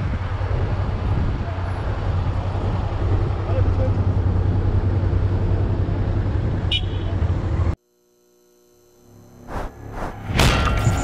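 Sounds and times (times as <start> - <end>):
road and wind noise: 0.0 - 7.8
motorcycle engine drone: 0.0 - 11.0.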